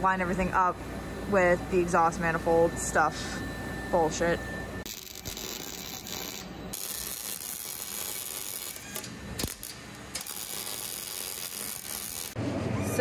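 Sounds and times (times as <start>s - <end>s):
welder arc crackling: 4.8s - 12.4s.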